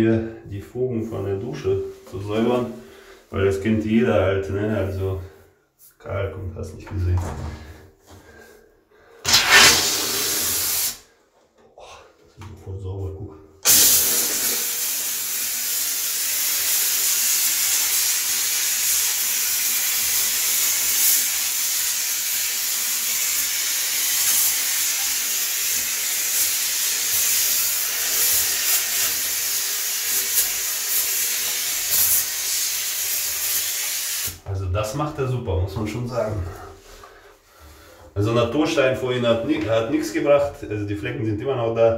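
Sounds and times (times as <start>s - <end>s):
steam cleaner hissing: 9.2s - 11.1s, 13.6s - 34.4s.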